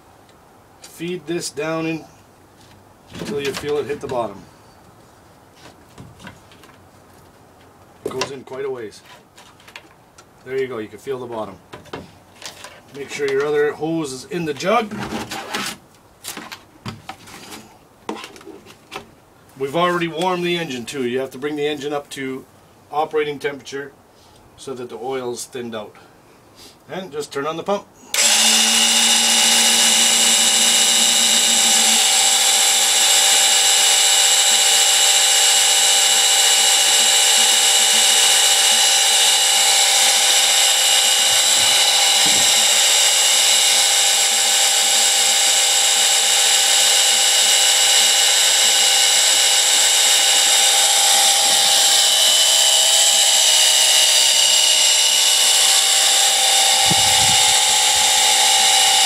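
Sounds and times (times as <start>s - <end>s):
electric pump whining: 28.1s - 59.0s.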